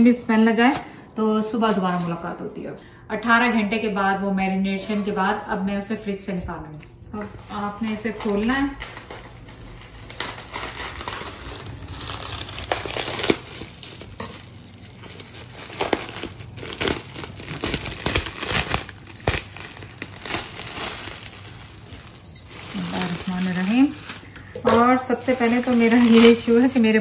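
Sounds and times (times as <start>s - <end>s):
cling film crinkling and tearing: 7.2s - 27.0s.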